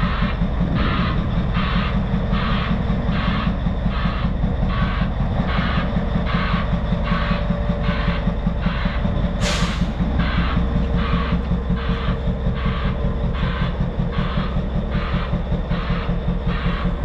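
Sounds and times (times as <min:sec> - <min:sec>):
backup alarm beeping: 0:00.0 - 0:17.0
diesel truck engine running: 0:00.0 - 0:17.0
air release hiss: 0:09.4 - 0:10.0.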